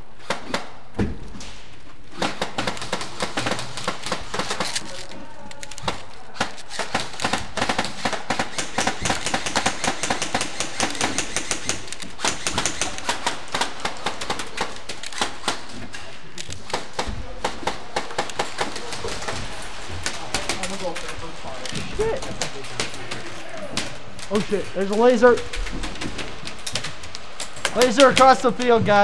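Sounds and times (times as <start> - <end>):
airsoft gunfire clicking: 5.8 - 15.7.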